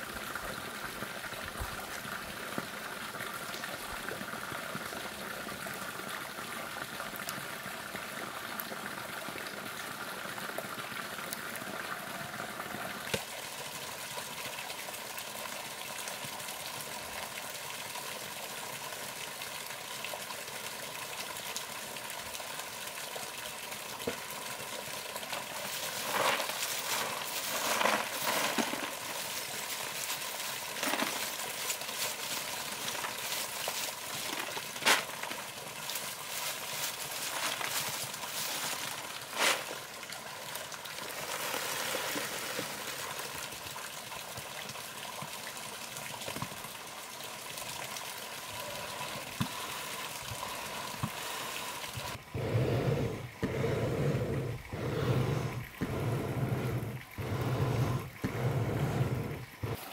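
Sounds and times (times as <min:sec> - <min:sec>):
steady rushing hiss: 0:25.2 - 0:39.8, 0:48.6 - 0:59.9.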